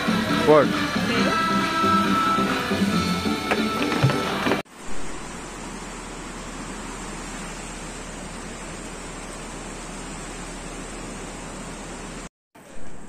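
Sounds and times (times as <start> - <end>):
rain falling on pool water: 4.7 - 12.3.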